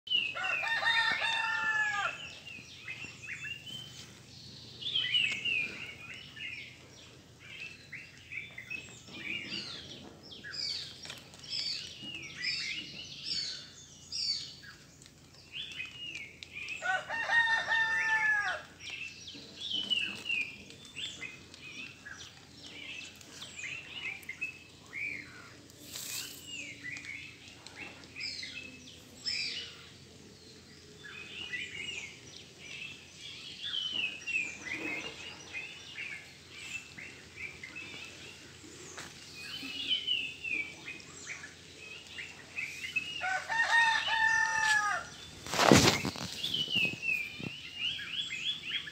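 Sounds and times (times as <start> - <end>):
small birds chirping: 0.0 - 48.9
rooster crowing: 0.3 - 2.4, 16.8 - 18.6, 43.2 - 45.1.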